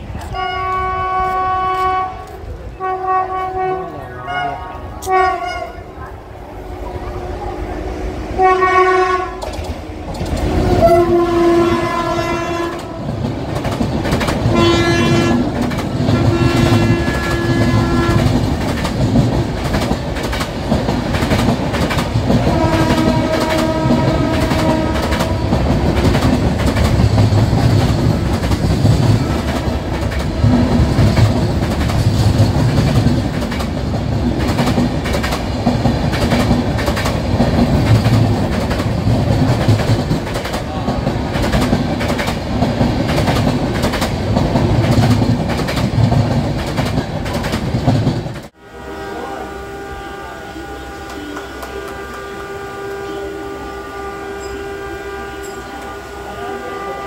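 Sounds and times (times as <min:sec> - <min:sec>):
train coaches rumbling past: 0:00.0 - 0:57.0
train horn blasts: 0:00.2 - 0:09.5, 0:10.4 - 0:13.2, 0:14.5 - 0:18.5, 0:22.4 - 0:26.2, 0:29.0 - 0:30.0, 0:48.6 - 0:57.0
wheels clattering over rail joints: 0:09.3 - 0:48.5.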